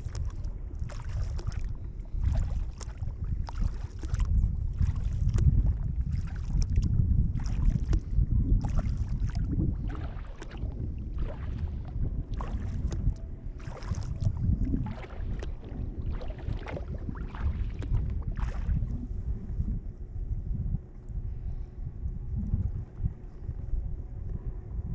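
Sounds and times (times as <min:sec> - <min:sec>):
paddle splashing in water: 0:00.0 - 0:18.9
wind rumble on microphone: 0:00.0 - 0:24.9.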